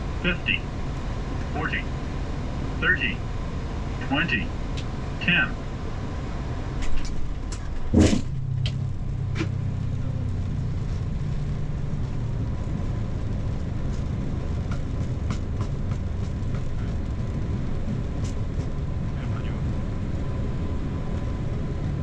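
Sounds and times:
aircraft low rumble: 0.0 - 22.0
sharp clunk: 6.8 - 8.8.

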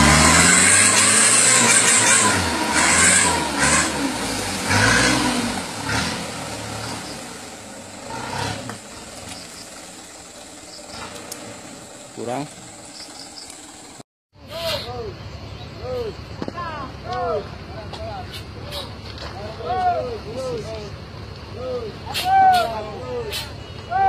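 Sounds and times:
truck engine revving: 0.0 - 14.0.

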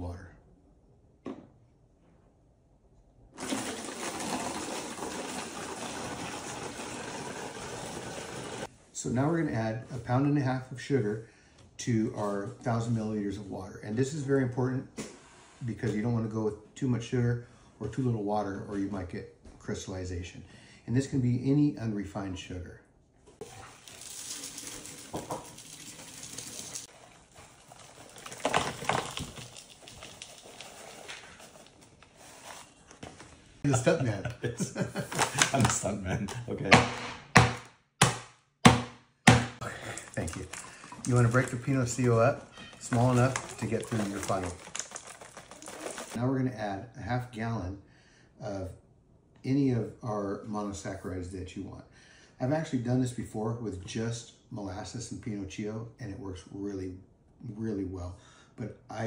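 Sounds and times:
water pouring into plastic jug: 3.4 - 8.7, 23.4 - 31.7, 39.6 - 46.2.

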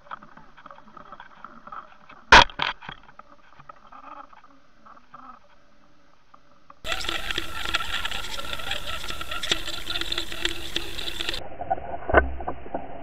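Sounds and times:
underwater ticking and clicking: 0.0 - 5.4, 6.9 - 11.4
steady underwater hum: 3.1 - 13.0.

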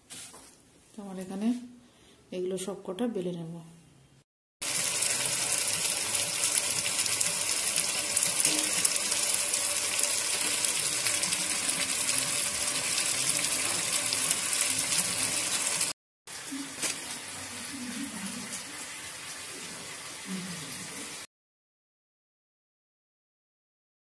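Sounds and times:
food deep-frying in hot oil: 4.6 - 21.3.

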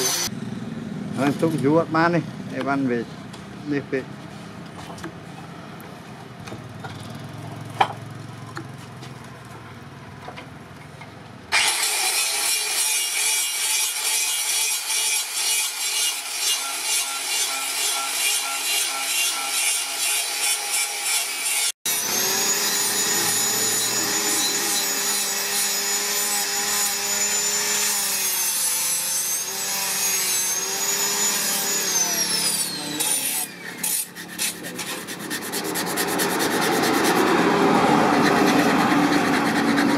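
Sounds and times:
steel blade scraping wood: 31.2 - 37.4, 38.1 - 39.9.

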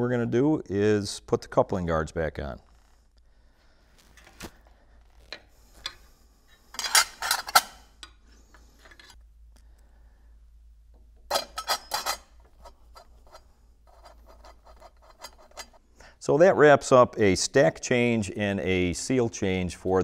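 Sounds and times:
metallic clattering and scraping: 5.1 - 9.2, 11.2 - 15.8.

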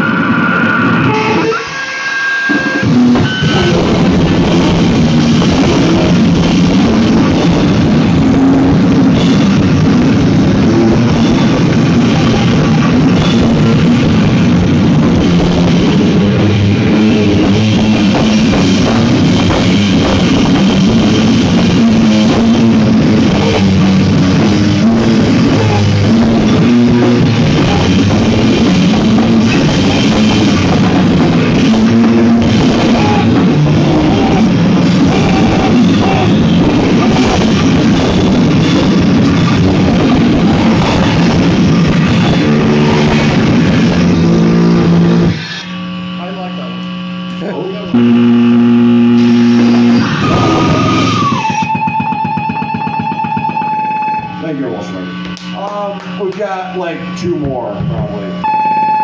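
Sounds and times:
rock band playing live: 0.0 - 45.4, 47.9 - 54.5.

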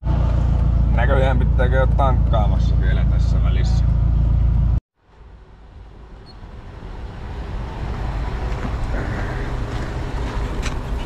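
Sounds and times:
car cabin rumble: 0.0 - 4.8
outdoor vehicle rumble: 0.0 - 11.0.

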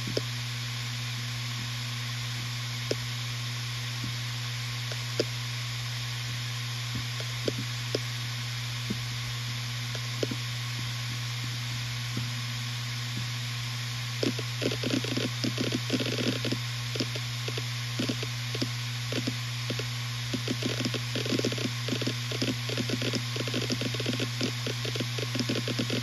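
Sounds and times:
hard drive seek clicks: 0.0 - 0.4, 2.8 - 3.2, 4.8 - 5.4, 6.8 - 12.4, 14.1 - 26.0
hard drive spinning hum: 0.0 - 26.0.

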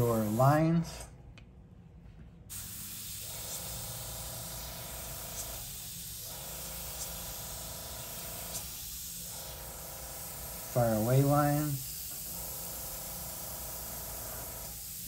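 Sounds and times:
airbrush hissing: 0.0 - 0.8, 2.5 - 15.0.

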